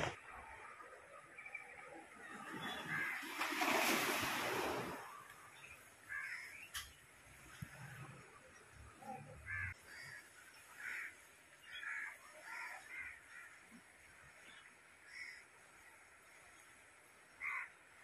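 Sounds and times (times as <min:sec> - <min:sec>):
crows cawing: 0:06.1 - 0:06.6, 0:09.5 - 0:13.6, 0:17.4 - 0:17.7.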